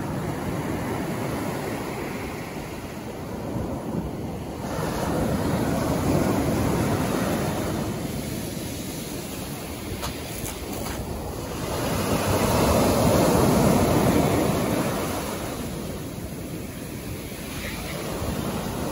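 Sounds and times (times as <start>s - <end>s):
surf breaking on pebble beach: 4.6s - 15.8s.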